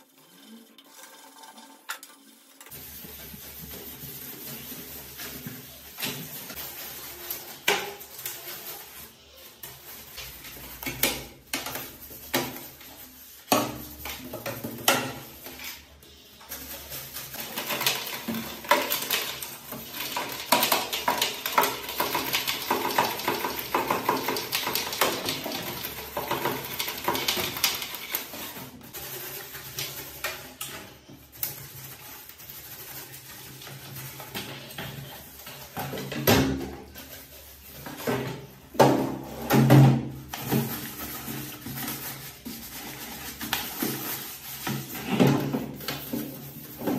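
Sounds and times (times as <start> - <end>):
brush scrubbing metal case: 2.7 - 46.9.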